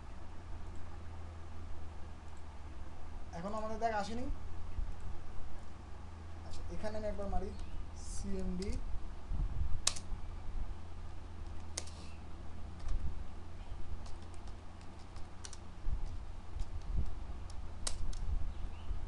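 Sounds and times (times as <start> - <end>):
steady low hum: 0.0 - 19.0
keyboard key clicks: 9.8 - 10.0, 17.5 - 18.2.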